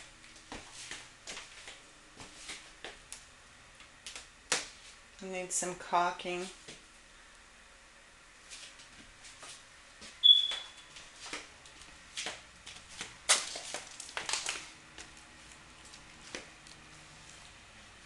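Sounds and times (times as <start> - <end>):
short high squeak: 10.2 - 10.9.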